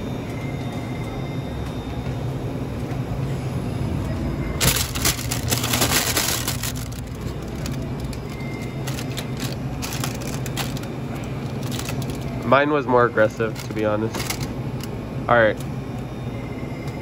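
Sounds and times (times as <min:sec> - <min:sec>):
steady low hum: 0:00.0 - 0:17.0
plastic wrappers crinkling: 0:04.6 - 0:12.5, 0:13.3 - 0:14.9.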